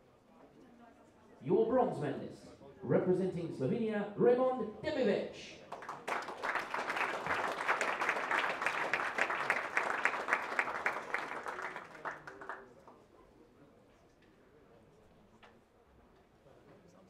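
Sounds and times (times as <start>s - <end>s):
audience applauding: 5.7s - 12.8s.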